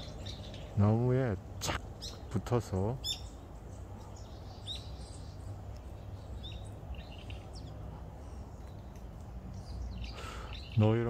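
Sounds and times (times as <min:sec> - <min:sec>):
high bird chirps: 0:09.6 - 0:11.0.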